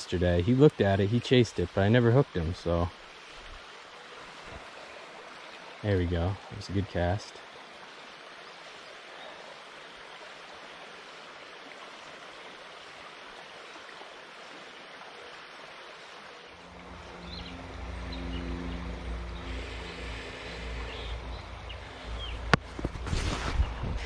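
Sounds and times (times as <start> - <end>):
creek flowing: 0.0 - 24.0
low rumble with hum: 16.6 - 24.0.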